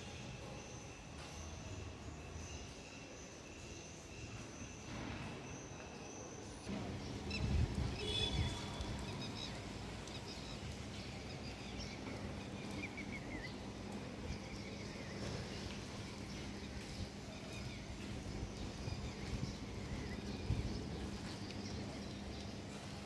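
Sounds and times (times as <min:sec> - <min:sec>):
birds chirping: 0:02.3 - 0:23.0.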